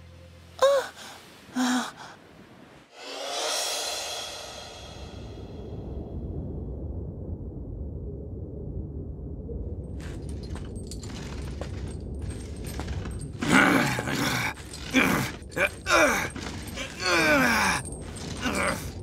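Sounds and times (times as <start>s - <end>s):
boy crying out: 0.6s - 1.0s, 15.8s - 17.8s
boy groaning and gasping: 0.6s - 2.1s, 13.4s - 18.9s.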